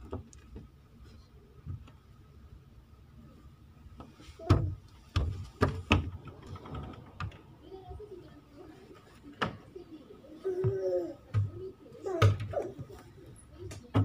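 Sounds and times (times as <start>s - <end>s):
knocks and thumps of wooden door: 4.4s - 7.5s.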